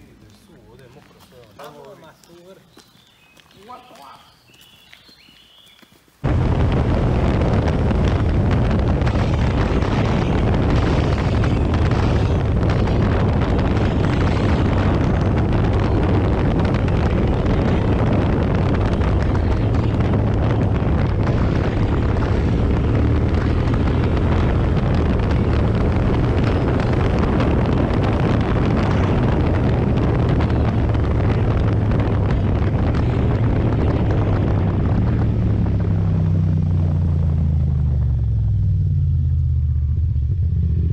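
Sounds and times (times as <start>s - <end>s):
wind on microphone: 6.2s - 38.7s
vehicle engine running: 6.2s - 40.9s.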